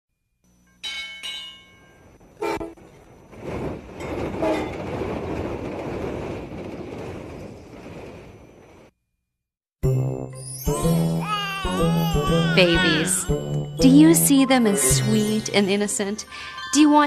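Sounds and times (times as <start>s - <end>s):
train rushing by: 1.8s - 8.9s.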